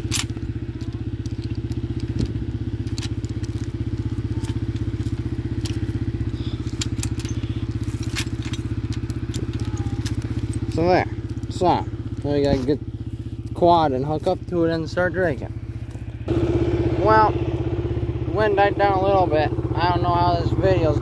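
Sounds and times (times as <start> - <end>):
steel chain clinking: 0.0 - 14.2
atv engine idling: 0.0 - 21.0.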